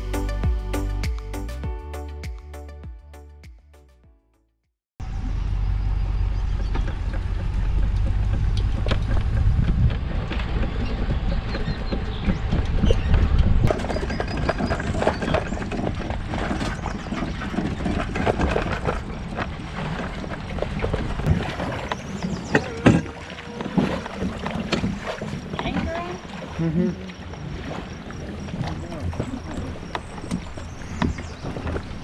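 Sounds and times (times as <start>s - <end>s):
low rumble and wind noise: 5.0s - 26.4s.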